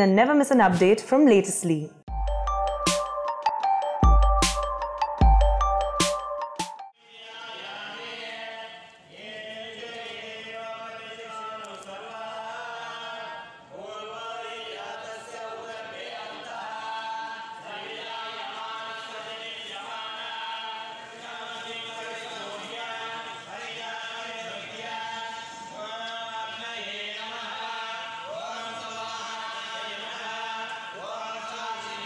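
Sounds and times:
electronic jingle: 2.1s - 6.9s
men chanting mantras: 7.0s - 32.0s.

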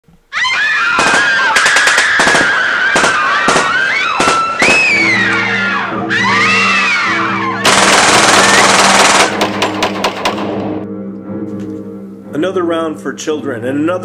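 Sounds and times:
people screaming: 0.3s - 9.2s
gunshots: 0.9s - 5.1s, 7.6s - 10.7s
low sustained music chord: 10.6s - 14.0s.

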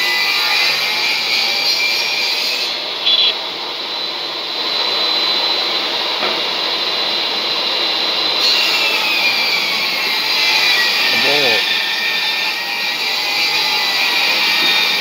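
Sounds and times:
referee's whistle blast: 3.0s - 3.4s.

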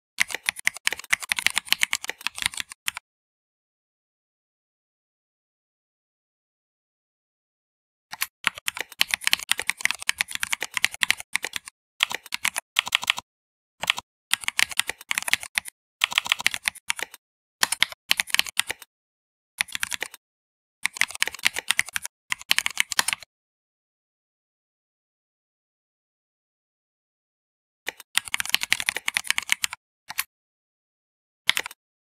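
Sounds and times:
keyboard key clicks: 31.5s - 31.8s.

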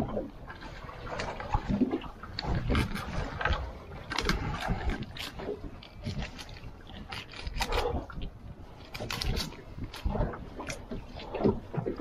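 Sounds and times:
knocks and scrapes of handling: 2.4s - 12.0s.

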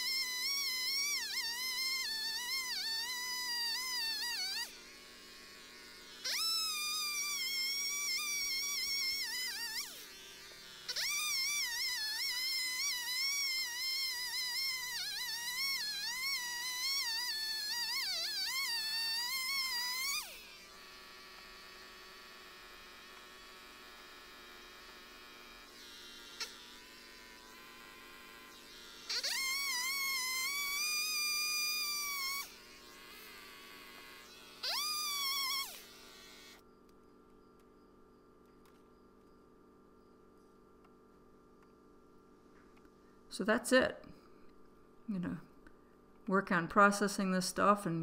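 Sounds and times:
electric chainsaw cutting a log: 0.0s - 36.6s.

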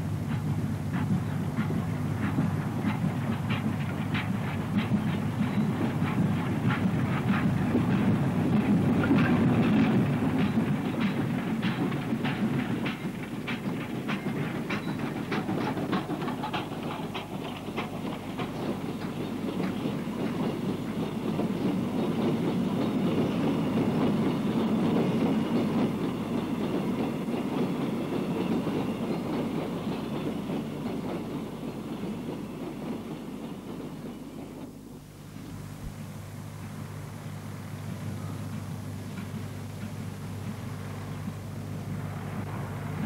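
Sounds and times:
train wheels clacking over rail joints: 0.0s - 35.2s, 38.0s - 41.9s
steam engine rumble: 0.0s - 43.0s
faint high whine: 34.1s - 43.0s.

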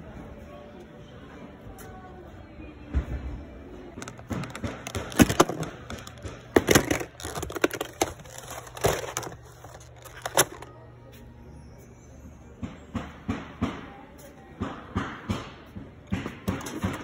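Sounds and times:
boxed tools knocking and rattling: 4.0s - 10.7s, 16.1s - 17.0s.

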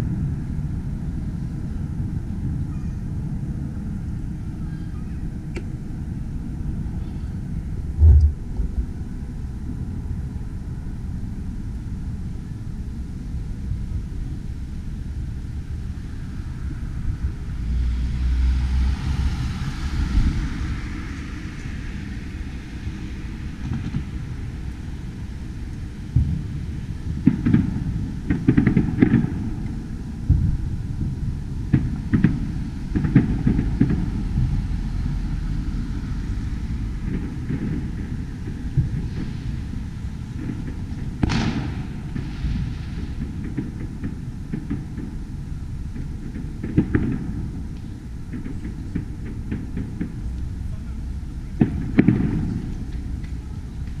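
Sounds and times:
city traffic rumble: 0.0s - 54.0s
distant fireworks booming: 7.7s - 10.4s, 25.9s - 54.0s.

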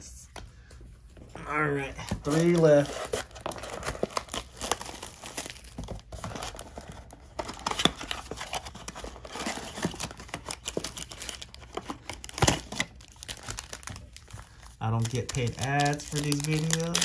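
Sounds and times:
cardboard box rustling: 2.1s - 14.4s.

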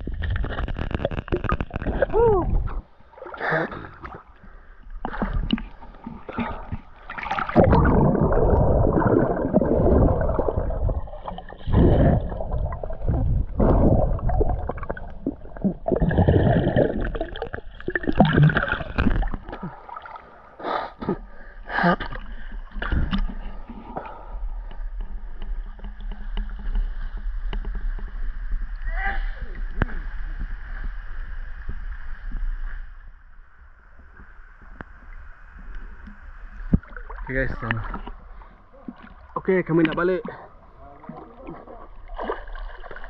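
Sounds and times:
water splashes: 0.0s - 24.3s, 34.0s - 43.0s
river water gurgling: 5.1s - 21.0s.

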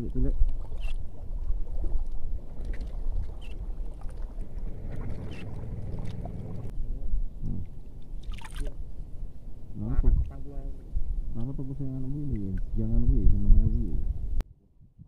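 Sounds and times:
small waves lapping: 0.0s - 6.7s, 7.7s - 9.1s
wind buffeting microphone: 0.0s - 8.0s, 8.6s - 15.0s.

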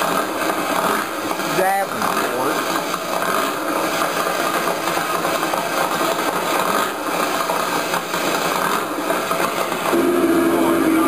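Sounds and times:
engine running with rough buzz: 0.0s - 11.0s.

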